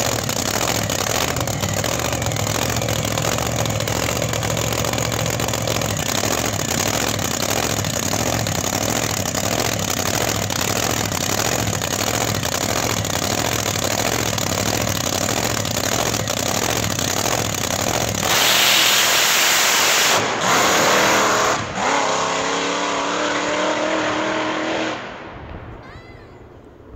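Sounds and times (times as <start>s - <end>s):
race engine idling and launching: 0.0s - 26.9s.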